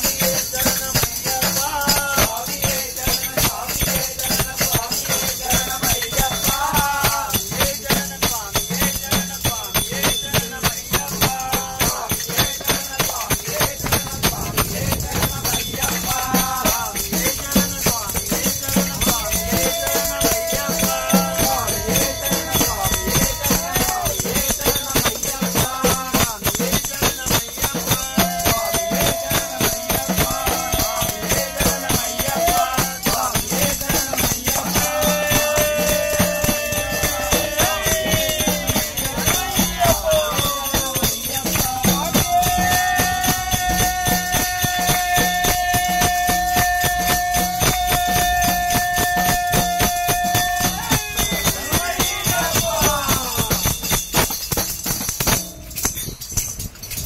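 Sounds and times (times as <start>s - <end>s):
jingling percussion beat: 0.0s - 57.0s
voices singing long notes: 13.8s - 26.1s, 27.4s - 53.5s.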